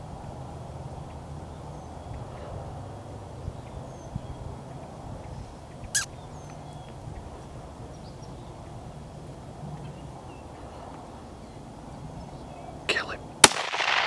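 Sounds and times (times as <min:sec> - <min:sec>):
faint high bird chirps: 0:05.8 - 0:07.0.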